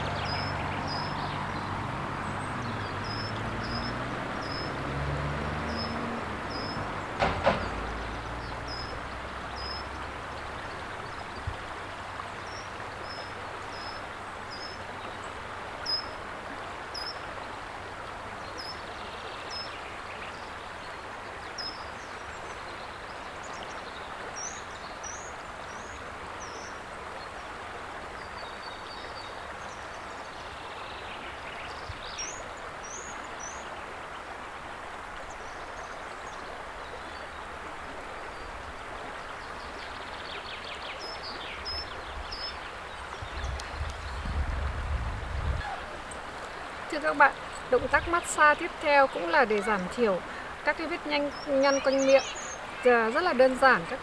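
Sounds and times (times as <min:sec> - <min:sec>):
flowing water rushing: 0:00.0 - 0:54.0
brief knocks: 0:07.2 - 0:07.9.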